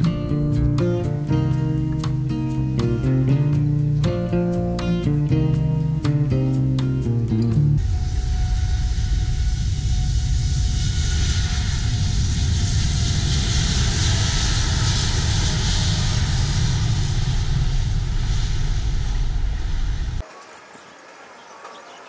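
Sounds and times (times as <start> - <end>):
jet engines roaring: 7.8 - 22.0.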